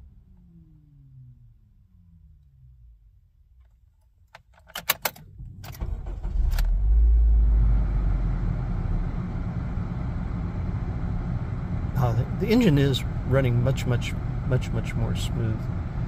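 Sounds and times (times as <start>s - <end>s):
car engine starting and idling: 0.0s - 16.0s
key clicking in ignition: 3.6s - 5.8s.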